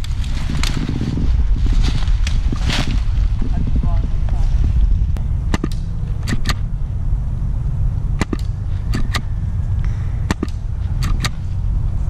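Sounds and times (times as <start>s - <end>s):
wind rumble on microphone: 0.0s - 12.0s
airsoft rifle firing clicks: 5.5s - 6.6s, 8.2s - 9.3s, 10.3s - 11.4s.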